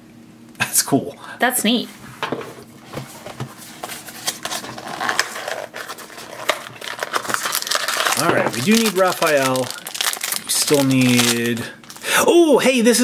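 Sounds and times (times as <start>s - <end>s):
rustling cardboard: 3.0s - 10.9s
cardboard box torn open: 4.3s - 11.5s.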